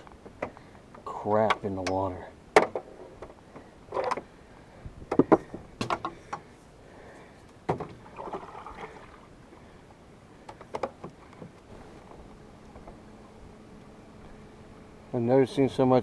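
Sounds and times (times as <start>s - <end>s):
water swishing: 8.0s - 9.4s.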